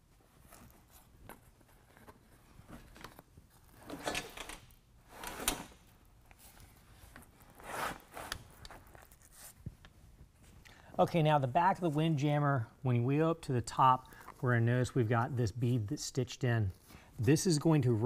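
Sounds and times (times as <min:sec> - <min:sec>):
fabric scraping along plastic: 0:07.3 - 0:09.6.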